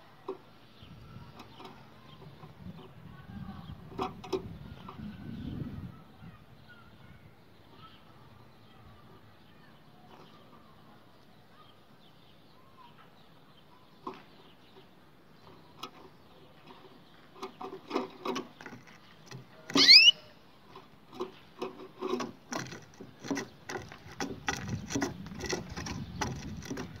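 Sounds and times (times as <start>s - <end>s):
canary chirp: 4.7s - 20.4s.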